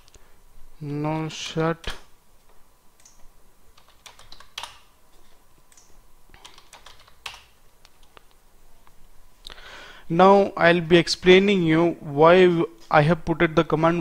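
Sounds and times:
computer keyboard typing: 0:03.0 - 0:04.9, 0:05.7 - 0:08.2.

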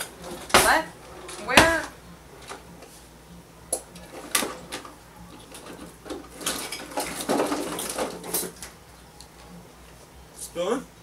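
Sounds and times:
kitchen utensils clinking: 0:05.4 - 0:08.6.

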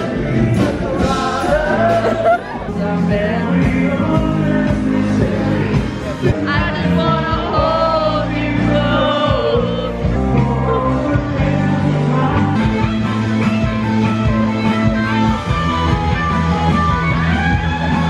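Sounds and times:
person singing: 0:00.0 - 0:13.0
bass guitar: 0:00.0 - 0:18.0
distorted electric guitar: 0:00.0 - 0:18.0
drums: 0:00.0 - 0:18.0.

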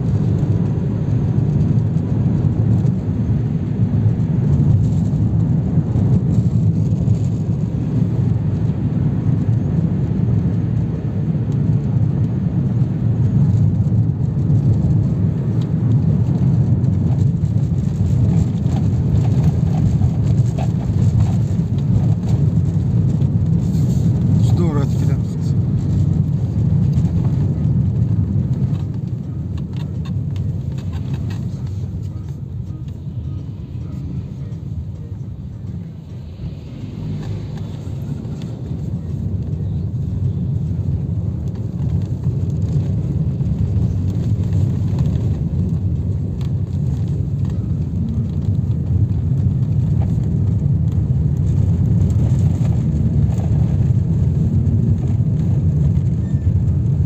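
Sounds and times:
car engine rumble: 0:00.0 - 0:57.0
tyre noise: 0:16.4 - 0:56.5.

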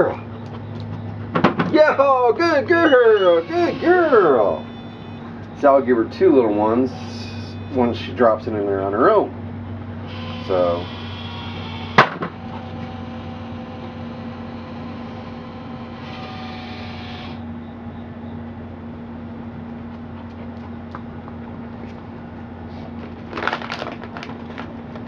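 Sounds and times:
knocks and rustles on machine: 0:01.3 - 0:01.8
ball launcher humming: 0:10.0 - 0:19.4.

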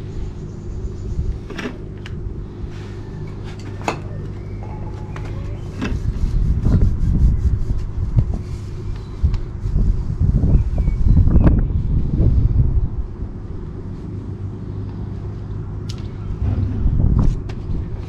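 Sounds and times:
low mechanical hum: 0:00.0 - 0:18.0
wind buffeting microphone: 0:04.0 - 0:18.0.

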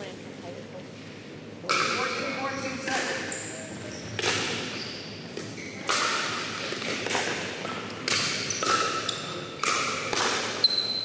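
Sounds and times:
paddles hitting plastic ball: 0:09.6 - 0:10.6.

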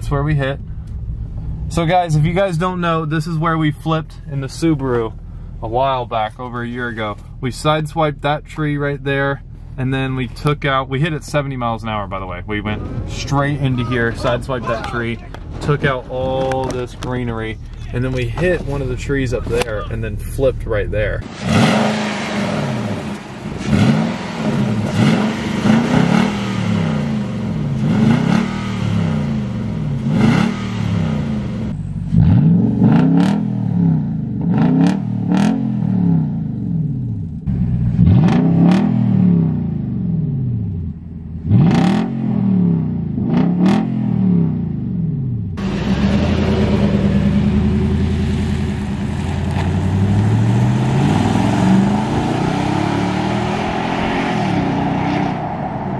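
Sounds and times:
exhaust pops: 0:00.0 - 0:33.5, 0:45.2 - 0:55.9
truck engine revving: 0:10.9 - 0:40.8, 0:41.4 - 0:55.9.

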